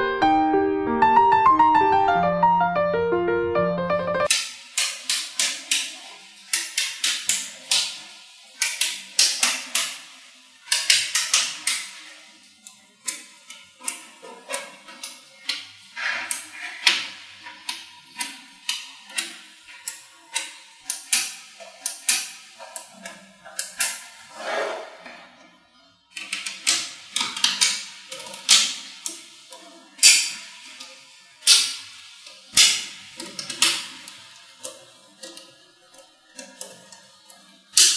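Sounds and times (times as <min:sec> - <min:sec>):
magnetic balls clicking together: 0:04.3 - 0:15.7.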